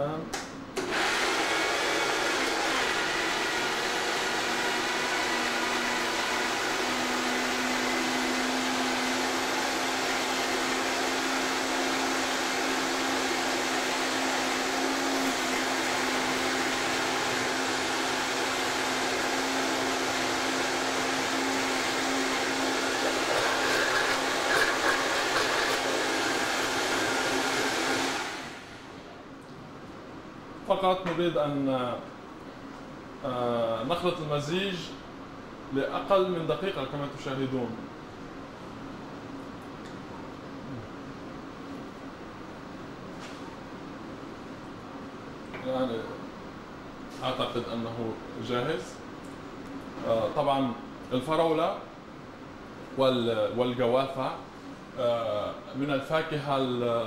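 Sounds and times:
crushed ice blending: 0.8s - 28.7s
blender motor running: 0.8s - 29.0s.

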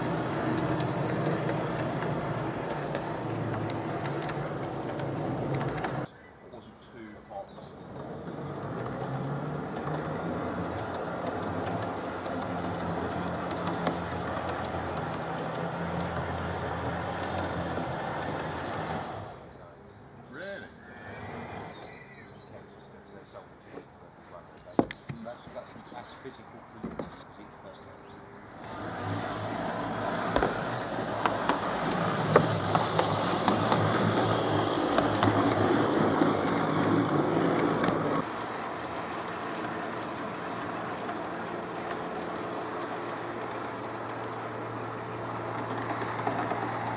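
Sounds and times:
electric motor hum: 0.0s - 6.1s, 7.7s - 19.5s, 28.5s - 46.9s
model train wheels rumbling: 0.0s - 6.1s, 7.3s - 19.6s, 28.6s - 46.9s
sharp track clicks: 0.0s - 6.1s, 7.3s - 19.4s, 28.6s - 46.9s.

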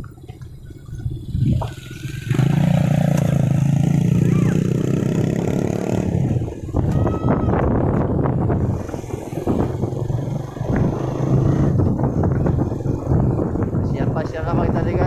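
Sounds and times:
vehicle engine running: 0.0s - 6.8s
street noise: 0.0s - 15.0s.

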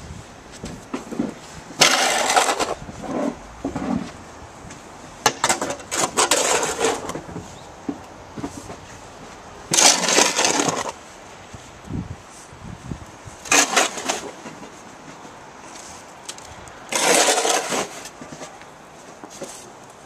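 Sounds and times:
snow shovel scraping pavement: 0.6s - 4.3s, 5.3s - 7.6s, 9.7s - 11.1s, 13.4s - 16.0s, 16.9s - 19.7s.

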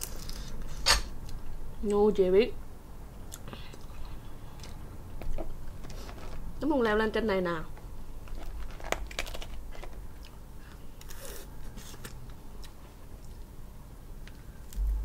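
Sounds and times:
crab shell cracking: 8.3s - 10.1s.

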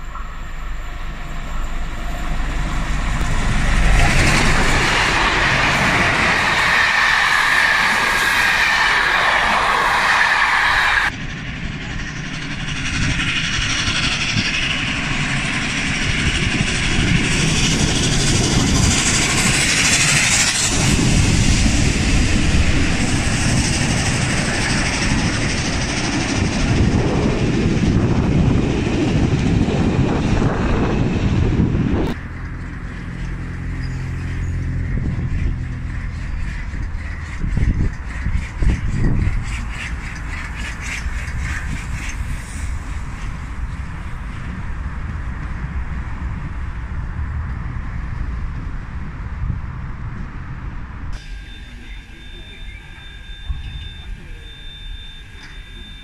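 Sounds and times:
steam locomotive moving: 0.0s - 56.0s
train coaches rolling past: 0.0s - 56.0s
high hissing: 3.3s - 11.1s.

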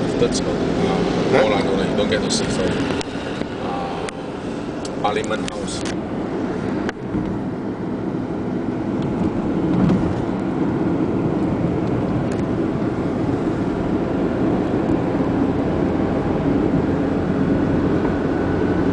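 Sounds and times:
car engine and tyre noise: 0.0s - 18.9s.

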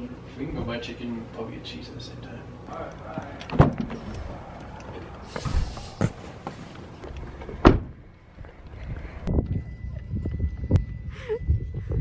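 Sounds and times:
footsteps: 3.1s - 7.6s
door shutting: 3.3s - 4.5s, 7.4s - 8.0s.

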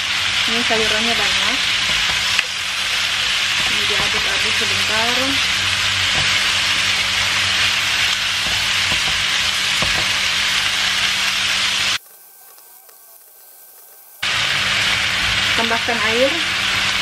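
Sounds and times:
vegetables sizzling in oil: 0.0s - 17.0s
spatula scraping a pan: 0.8s - 12.3s.

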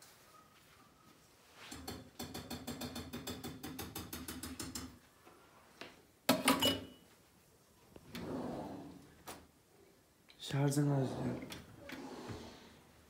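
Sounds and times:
cookware clattering: 6.3s - 7.0s.

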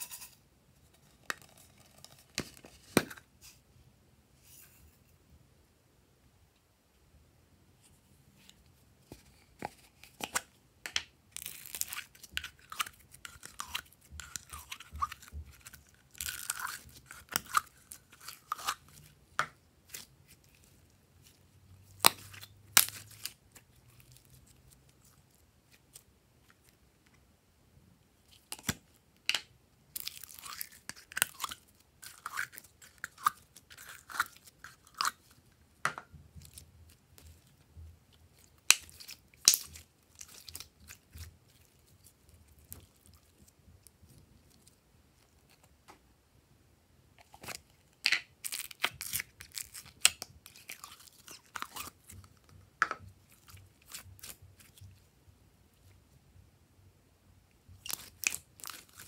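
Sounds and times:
slime squishing with wet crackles: 9.6s - 27.0s, 28.3s - 45.9s, 47.2s - 56.0s, 57.7s - 59.0s.

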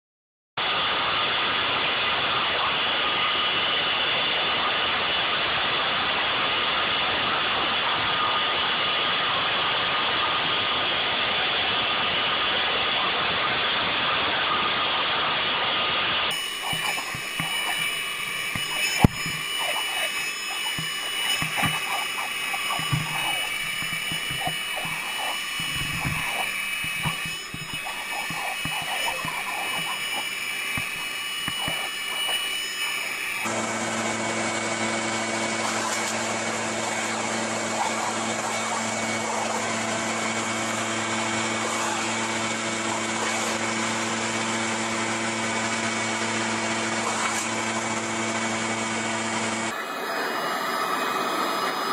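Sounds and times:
leaf blower low hum: 16.3s - 51.9s
leaf blower running: 16.3s - 51.9s.

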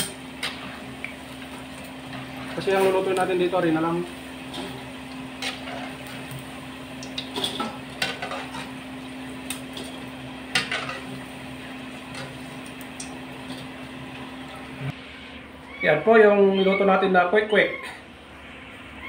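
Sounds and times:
oil frying with a hiss: 0.0s - 15.4s
metal ladle scraping a pan: 5.4s - 6.2s, 7.4s - 8.8s.

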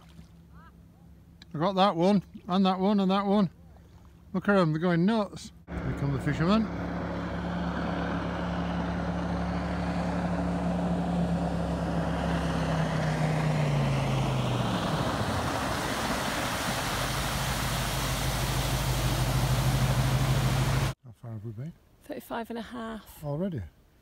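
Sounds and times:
jet boat engine passing: 5.6s - 21.0s
hiss of water spray: 14.6s - 21.0s.

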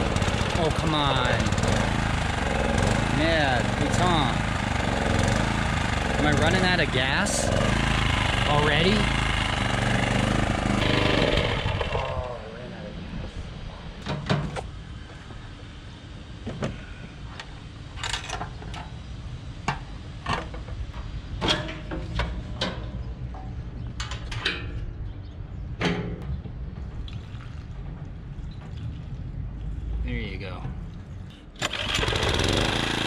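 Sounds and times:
fuel pouring into tank: 27.1s - 27.7s.

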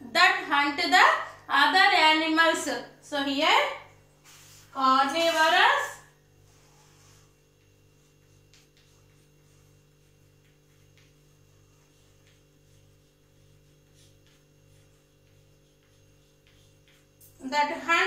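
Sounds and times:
faint electrical hum: 0.0s - 18.0s
chalk ticking on blackboard: 6.5s - 17.9s.

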